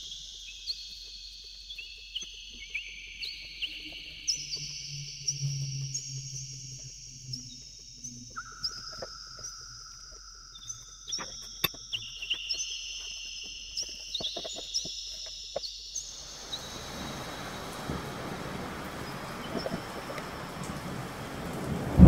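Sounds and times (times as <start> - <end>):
heavy rain: 16.1 - 22.0
thunder: 16.8 - 22.0.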